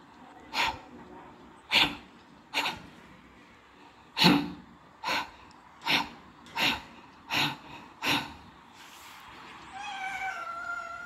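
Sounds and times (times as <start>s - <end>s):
cat meowing: 9.7s - 11.0s.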